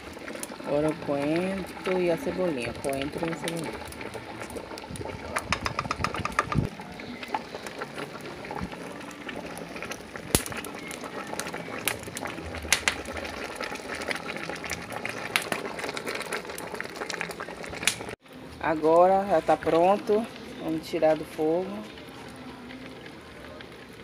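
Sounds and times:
stew boiling and bubbling: 0.0s - 24.0s
sharp clicks from wood fire: 10.3s - 10.7s, 12.7s - 13.1s, 17.8s - 18.2s.

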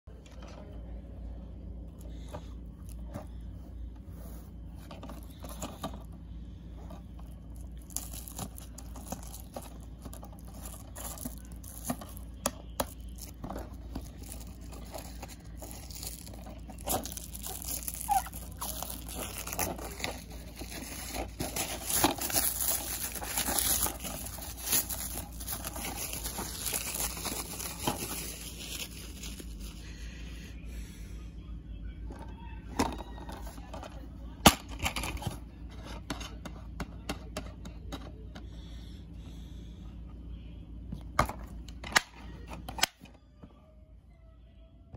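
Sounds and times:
plastic wrap crinkling and tearing: 7.3s - 29.8s.

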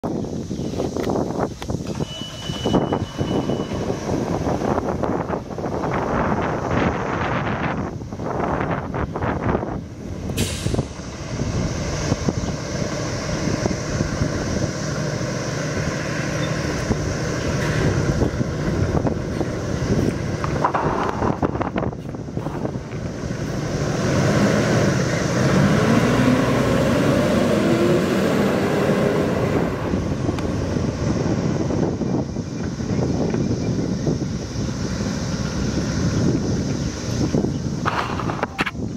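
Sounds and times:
diesel engine idling and revving: 0.0s - 38.9s
air brakes hissing: 10.4s - 11.0s.

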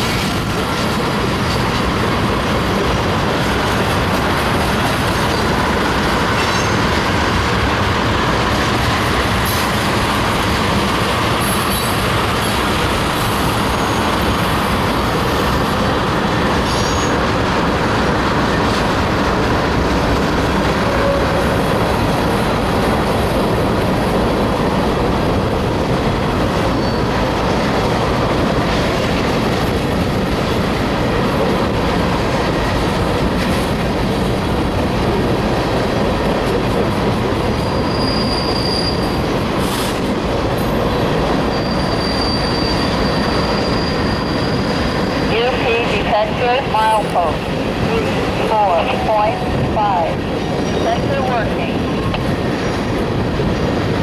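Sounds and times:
freight train wheels rumbling on rails: 0.0s - 54.0s
high wheel squeals: 16.6s - 17.2s, 26.8s - 27.1s, 37.5s - 39.3s, 41.5s - 45.3s.

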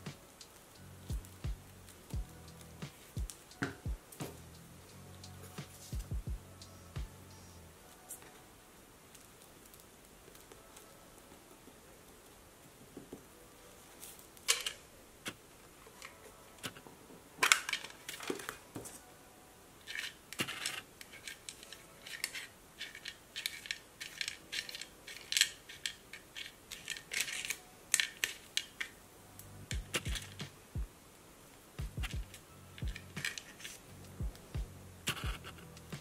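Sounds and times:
paper crinkling: 17.4s - 19.1s, 19.8s - 29.0s, 32.2s - 33.9s.

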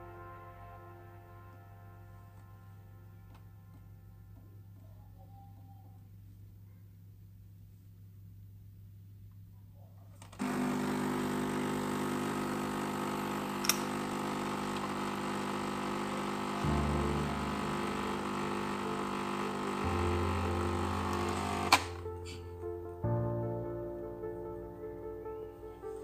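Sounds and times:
coffee machine pump humming: 10.4s - 22.0s
coffee machine click: 13.6s - 14.0s.

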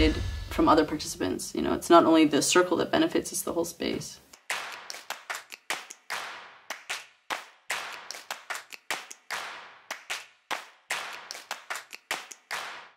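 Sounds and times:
sharp hand claps: 4.3s - 12.9s.

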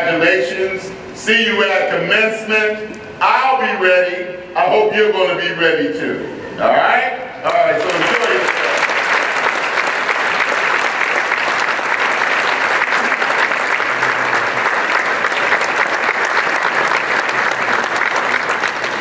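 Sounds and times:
audience applauding: 7.5s - 19.0s.

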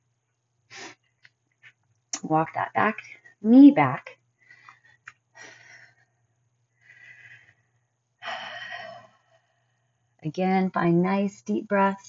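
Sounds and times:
woman breathing deeply: 4.4s - 10.2s.

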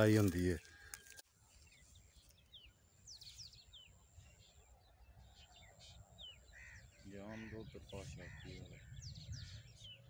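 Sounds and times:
faint birds chirping: 0.0s - 10.0s
low wind rumble: 7.5s - 10.0s.

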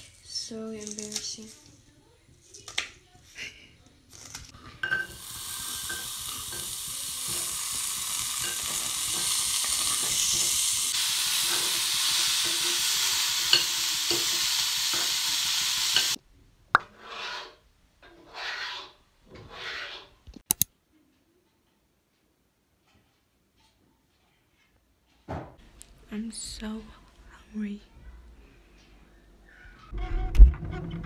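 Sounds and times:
meat sizzling in a pan: 4.8s - 16.2s
metal spatula tapping and scraping: 5.8s - 10.6s, 13.5s - 15.2s, 15.9s - 16.2s
sharp clicks: 20.4s - 20.7s.

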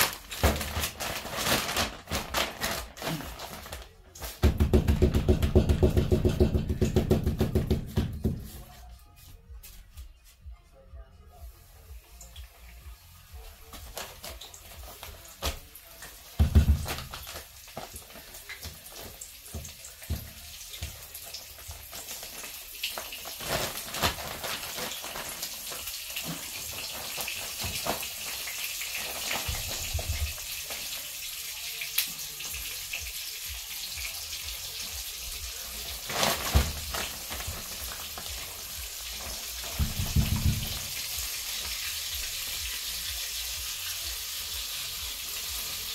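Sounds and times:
chicken sizzling in a pan: 17.1s - 23.9s, 24.6s - 45.9s.

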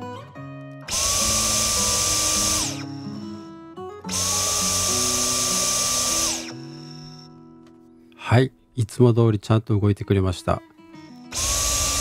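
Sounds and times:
cordless vacuum motor whining: 0.9s - 3.3s, 4.1s - 7.2s, 11.3s - 12.0s.

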